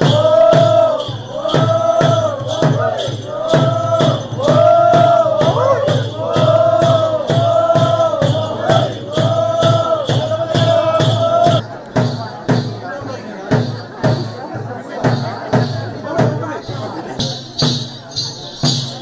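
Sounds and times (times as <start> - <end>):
steady drum beat: 0.0 - 19.0.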